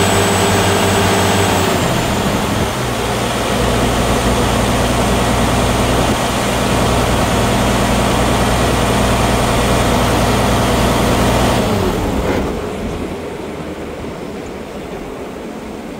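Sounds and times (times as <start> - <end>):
diesel engine running and winding down: 0.0 - 14.6.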